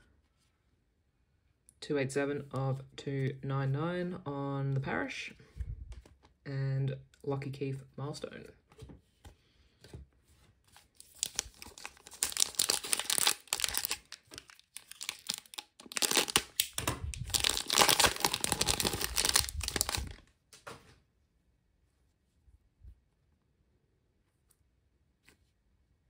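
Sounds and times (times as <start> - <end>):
foil wrapper crinkling and tearing: 10.9 - 20.2.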